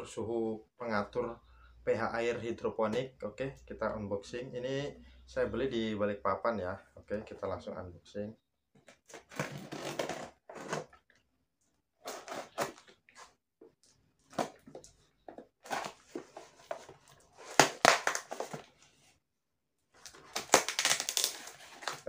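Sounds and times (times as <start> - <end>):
tape and cardboard tearing: 17.4 - 18.6, 20.1 - 22.0.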